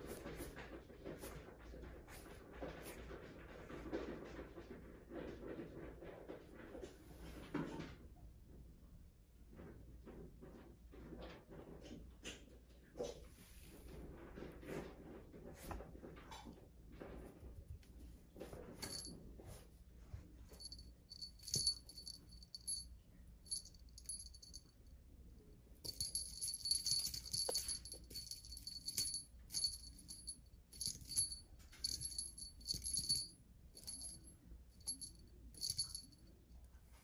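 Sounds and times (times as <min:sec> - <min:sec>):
small jingle bell jingling: 0:18.8 - 0:19.2, 0:20.5 - 0:24.8, 0:25.8 - 0:36.3.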